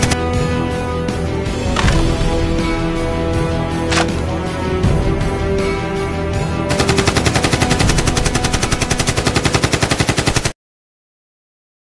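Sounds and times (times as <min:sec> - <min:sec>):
machine gun firing: 0:06.7 - 0:10.6.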